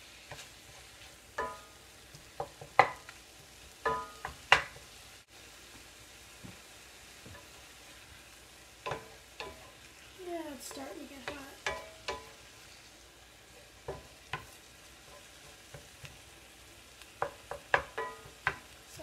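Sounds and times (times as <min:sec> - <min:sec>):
meat sizzling: 0:00.0 - 0:19.0
wooden spatula knocking on skillet: 0:00.2 - 0:05.0, 0:07.2 - 0:07.6, 0:08.8 - 0:09.9, 0:10.5 - 0:12.5, 0:13.6 - 0:16.3, 0:17.0 - 0:18.8.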